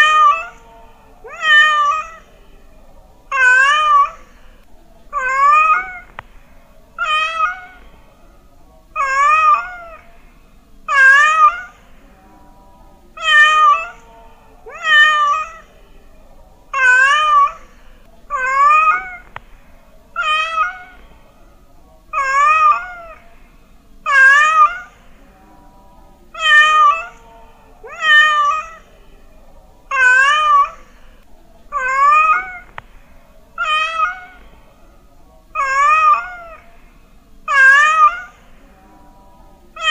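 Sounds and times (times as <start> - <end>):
cat meowing: 0.0 - 0.6, 1.2 - 2.3, 3.3 - 4.2, 5.1 - 6.2, 7.0 - 7.9, 9.0 - 10.1, 10.9 - 11.8, 13.2 - 14.0, 14.7 - 15.7, 16.7 - 17.7, 18.3 - 19.4, 20.2 - 21.0, 22.1 - 23.2, 24.1 - 25.0, 26.4 - 27.2, 27.8 - 28.9, 29.9 - 30.9, 31.7 - 32.8, 33.6 - 34.4, 35.5 - 36.7, 37.5 - 38.4.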